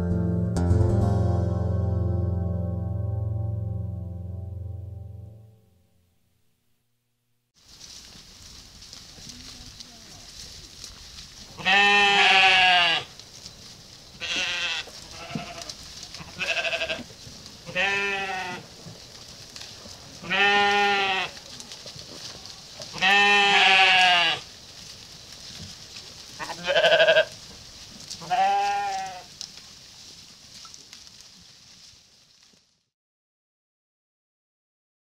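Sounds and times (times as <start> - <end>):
sheep bleating: 11.6 - 13.1, 14.2 - 18.6, 20.2 - 21.4, 22.9 - 24.5, 26.4 - 27.4, 28.2 - 29.3.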